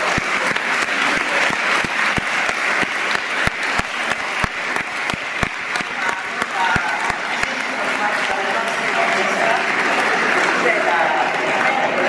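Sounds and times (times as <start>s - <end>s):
louder single claps: 0.0s - 8.3s
crowd applauding: 0.0s - 12.0s.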